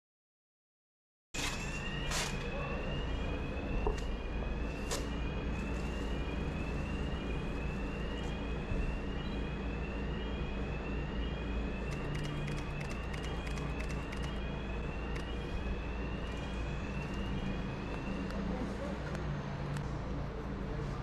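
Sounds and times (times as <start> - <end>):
rising siren-like tone: 1.4 - 19.6
vehicle rumble: 1.4 - 21.0
sharp clicks: 11.9 - 14.4.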